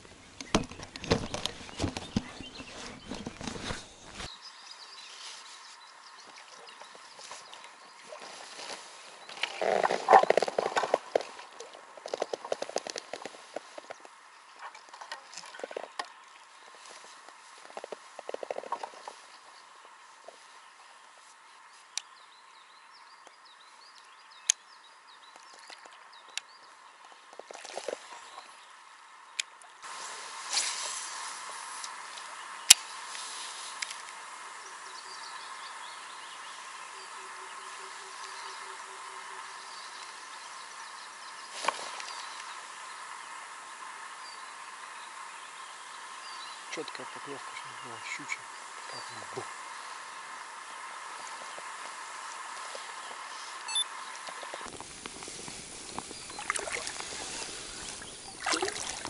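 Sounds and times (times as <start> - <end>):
faint birdsong: 0.0 - 59.0
water splashing: 27.3 - 28.5, 54.1 - 59.0.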